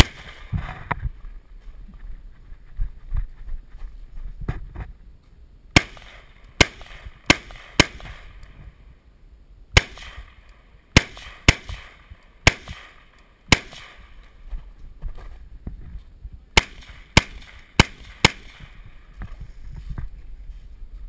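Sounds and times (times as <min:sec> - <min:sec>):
rifle shots echoing: 0:00.0 - 0:00.6, 0:05.7 - 0:08.6, 0:09.8 - 0:14.4, 0:16.6 - 0:19.1.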